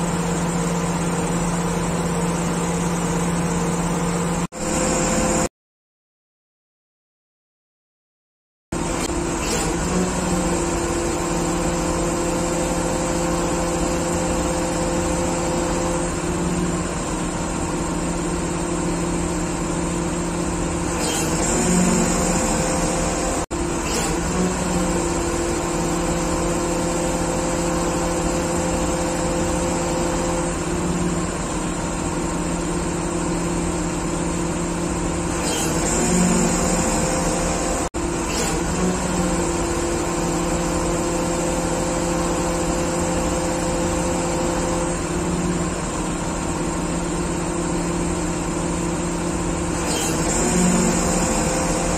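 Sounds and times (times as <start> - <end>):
diesel engine running: 0.0 - 5.5, 8.8 - 51.9.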